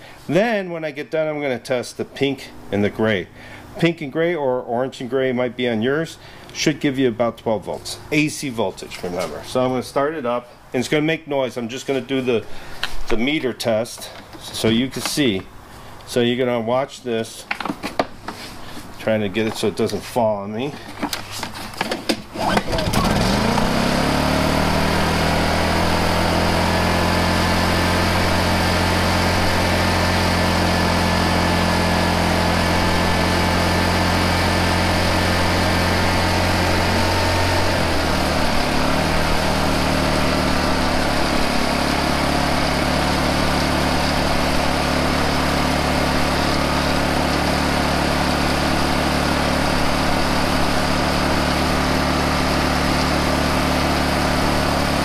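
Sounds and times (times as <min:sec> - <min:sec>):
generator engine running: 0:02.2 - 0:04.0, 0:07.2 - 0:10.4, 0:18.1 - 0:55.0.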